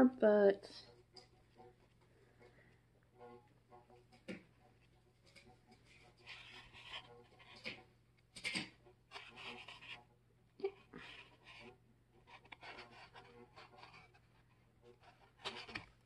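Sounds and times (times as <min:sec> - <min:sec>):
paper pages rustling: 0:05.2 - 0:07.8, 0:08.4 - 0:10.0, 0:10.8 - 0:16.0.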